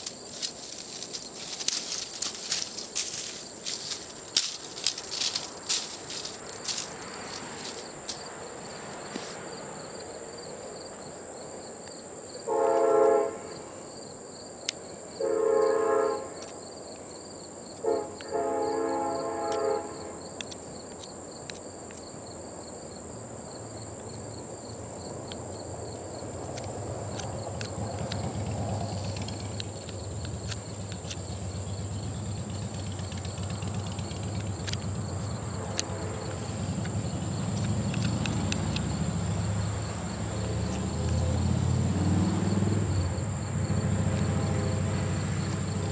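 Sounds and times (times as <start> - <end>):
insects chirping: 0.0 - 45.9
train horn blasts: 12.4 - 13.7, 15.2 - 16.4, 17.8 - 20.2, 35.5 - 36.8.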